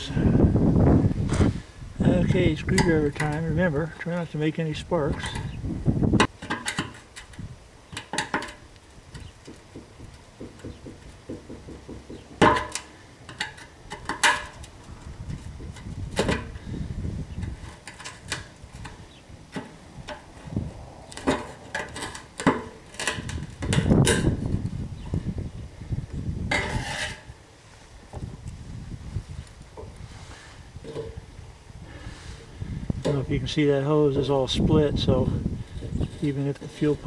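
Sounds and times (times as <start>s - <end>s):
screwdriver knocking on metal: 9.4s - 12.5s.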